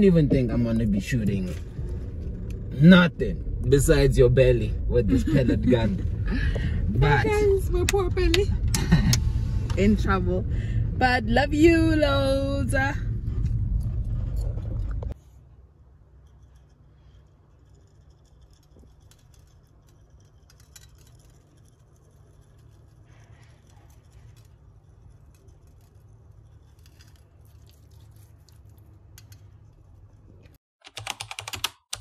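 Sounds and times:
low steady hum: 0.0s - 30.6s
loud burst of noise: 8.6s - 11.1s
spice pattering on meat: 23.8s - 29.8s.

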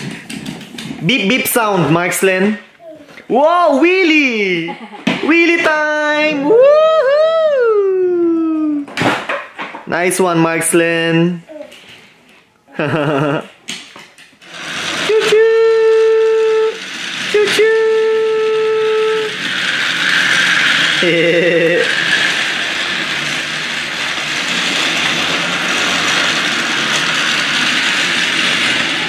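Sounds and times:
small motor whirring: 14.4s - 29.0s.

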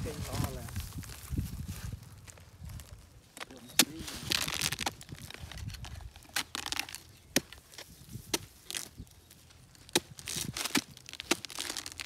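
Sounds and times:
fibre crunching and tearing: 0.0s - 12.0s
sharp chops into palm trunk: 3.4s - 5.0s, 6.2s - 9.0s, 9.9s - 12.0s.

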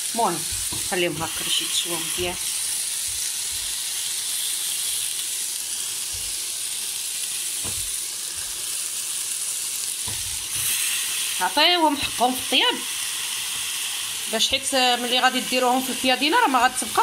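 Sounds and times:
chicken sizzling on a grill: 0.0s - 17.0s.

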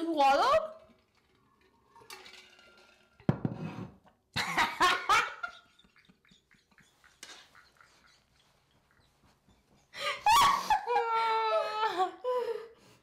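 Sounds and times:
women laughing: 4.4s - 12.6s.

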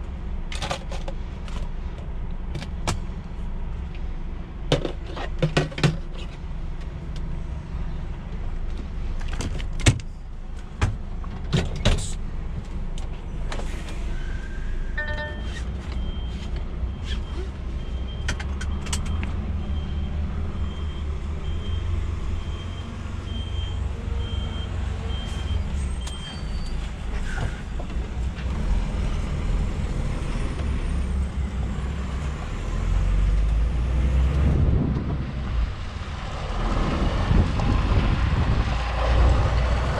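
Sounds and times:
dashboard warning chime beeping: 15.0s - 17.1s.

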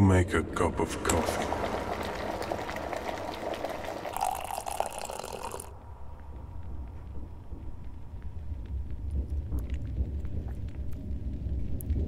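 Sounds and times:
low steady rumble: 0.0s - 12.0s
hot water pouring into mug: 1.0s - 5.8s.

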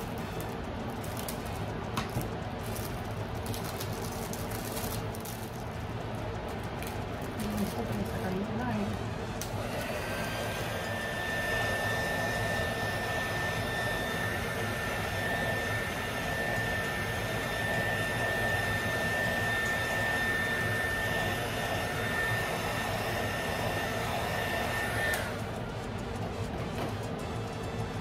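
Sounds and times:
heat gun blowing with whine: 0.0s - 28.0s.

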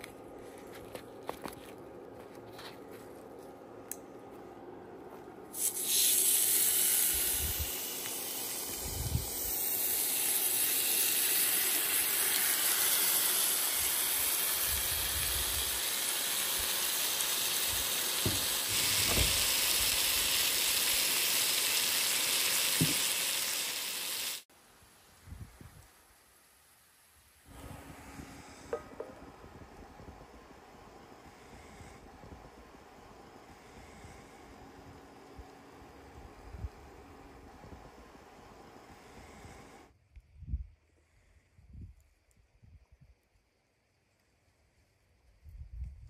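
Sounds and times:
meat sizzling in a skillet: 5.6s - 24.5s.

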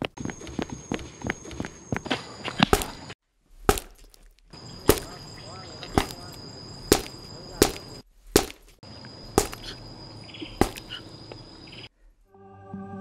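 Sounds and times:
cicadas droning: 0.0s - 12.0s
heavy chopping blows: 2.0s - 9.8s, 10.6s - 11.0s.

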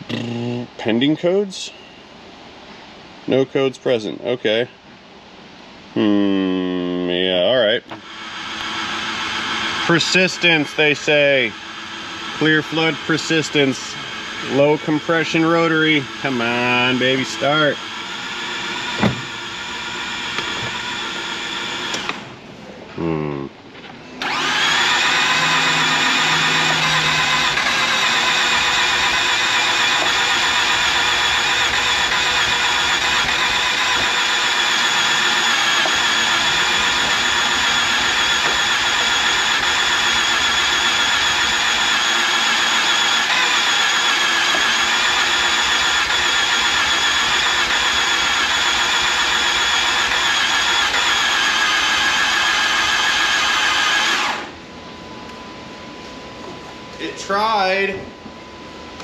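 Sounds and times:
starter motor cranking: 7.9s - 22.3s, 24.2s - 54.6s.

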